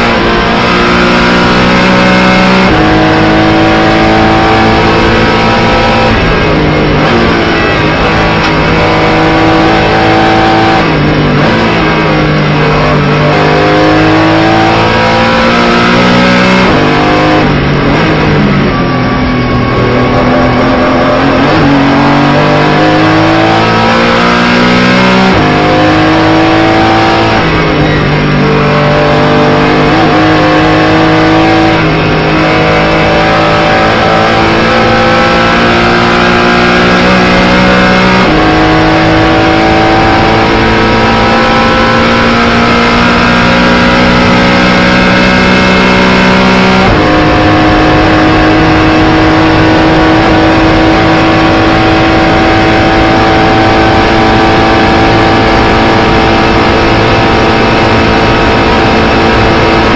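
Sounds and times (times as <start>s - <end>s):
car engine at full throttle: 0.0s - 59.9s.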